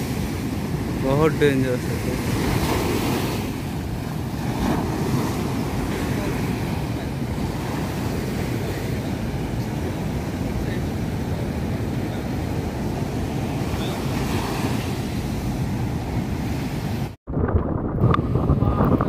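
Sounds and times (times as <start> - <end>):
surf breaking: 0.0 - 18.7
wind buffeting microphone: 0.0 - 19.0.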